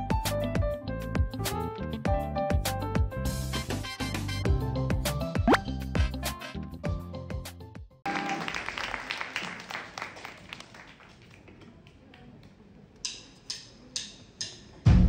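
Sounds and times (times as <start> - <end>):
audience applause: 8.0 - 12.1.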